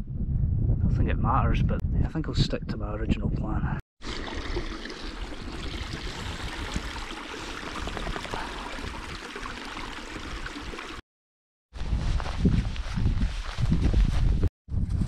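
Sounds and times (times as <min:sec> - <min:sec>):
water trickling in a stream: 0:04.0 - 0:11.0.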